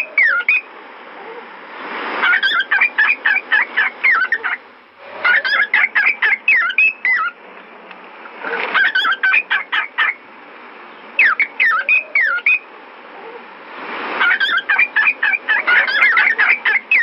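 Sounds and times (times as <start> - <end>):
cockatiel chattering and whistling: 0.0 - 0.7, 2.2 - 4.6, 5.2 - 7.4, 8.8 - 10.2, 11.2 - 12.6, 14.2 - 17.0
steady background hiss: 0.0 - 17.0.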